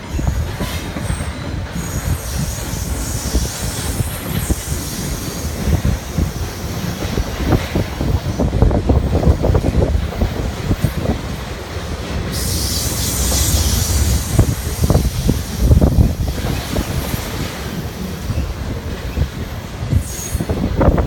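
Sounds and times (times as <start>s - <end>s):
freight train rumbling past: 0.0s - 21.0s
high hiss: 12.3s - 17.4s.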